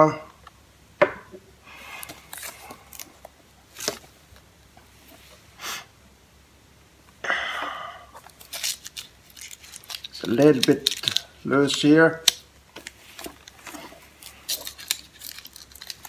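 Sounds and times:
person sniffing: 0:05.6 - 0:05.9, 0:07.2 - 0:08.2
cellophane rustles and taps: 0:08.2 - 0:16.0.

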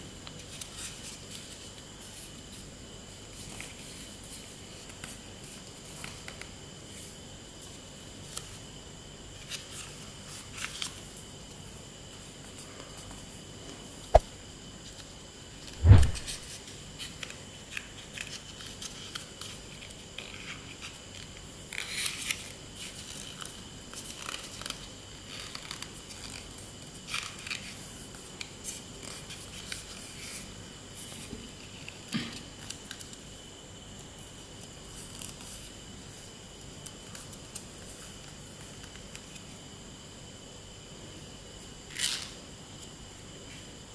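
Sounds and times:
dull thump: 0:15.8 - 0:16.4.

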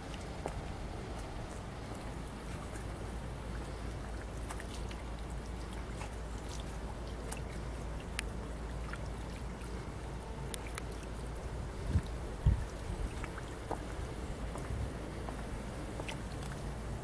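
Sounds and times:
water rushing at a weir: 0:00.0 - 0:17.0
faint light clicks: 0:08.1 - 0:08.3.

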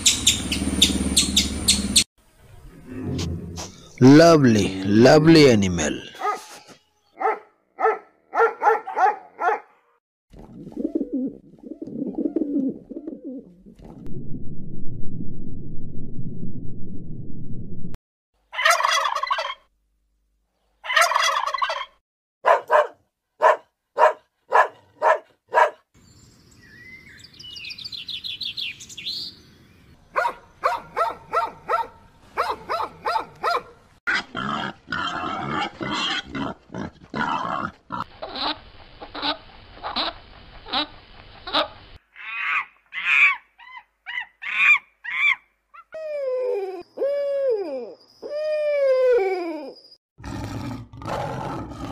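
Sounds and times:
turkey gobbling: 0:18.5 - 0:19.6, 0:20.8 - 0:22.0
animal calls and cries: 0:41.5 - 0:50.0.

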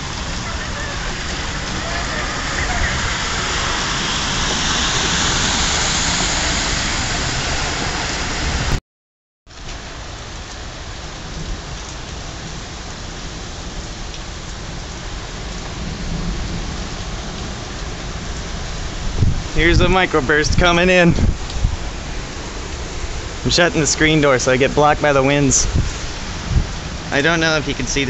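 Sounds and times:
heavy rain pouring on street: 0:00.0 - 0:08.8, 0:09.5 - 0:28.0.

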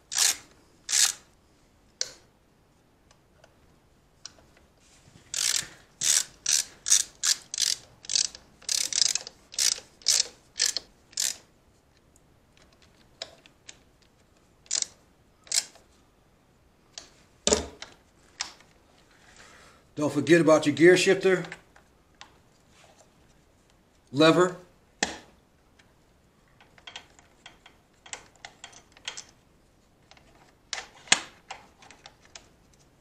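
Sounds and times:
socket ratchet clicking: 0:00.1 - 0:01.2, 0:05.3 - 0:11.5, 0:14.7 - 0:15.8.

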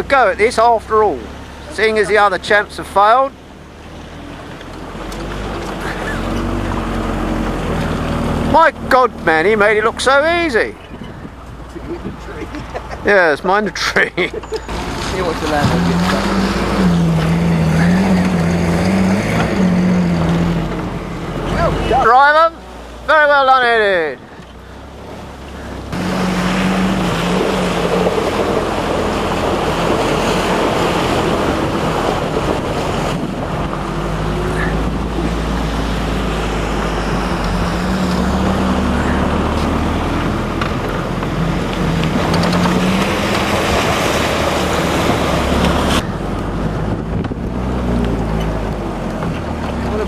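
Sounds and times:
vehicle engine running: 0:00.0 - 0:50.0
wind buffeting microphone: 0:10.7 - 0:13.1, 0:26.9 - 0:49.5.

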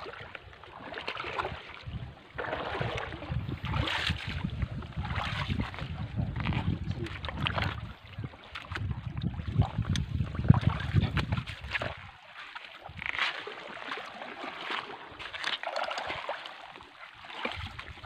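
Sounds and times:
shallow seawater sloshing: 0:00.0 - 0:18.0
wind buffeting microphone: 0:01.4 - 0:12.1.

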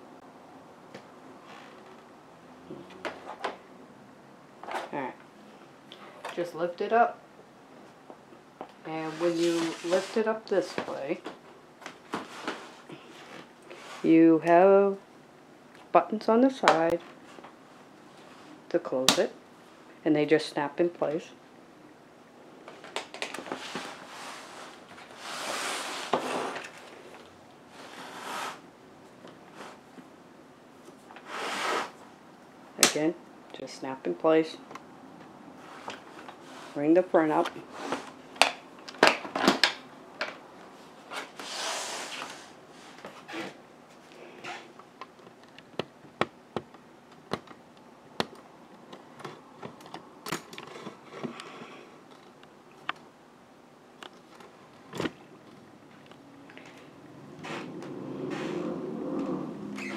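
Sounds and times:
rustling: 0:09.0 - 0:14.1.

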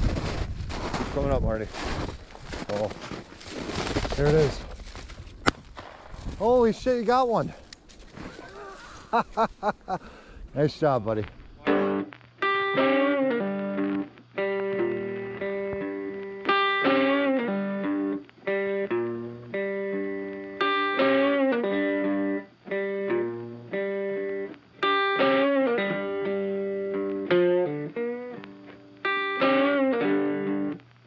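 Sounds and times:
guitar chords ringing: 0:11.2 - 0:31.0.

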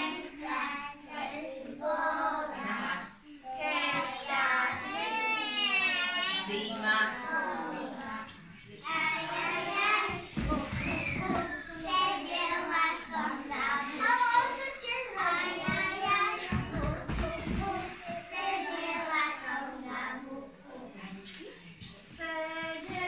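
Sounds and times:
small children singing: 0:00.0 - 0:21.2, 0:21.9 - 0:23.0.

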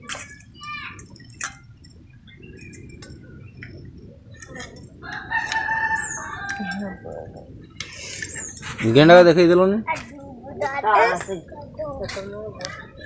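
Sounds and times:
rooster crowing: 0:05.0 - 0:07.2.

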